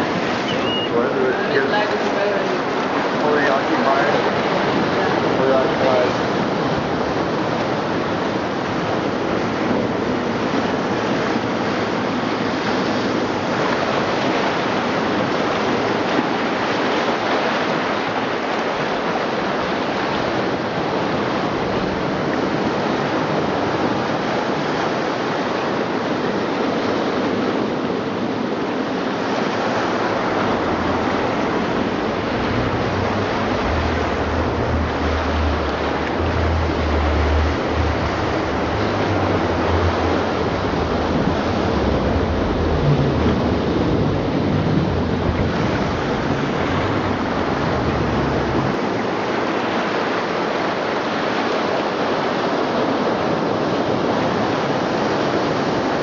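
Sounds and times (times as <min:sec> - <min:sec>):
ocean waves washing: 0:00.0 - 0:56.0
low rumble: 0:30.2 - 0:48.8.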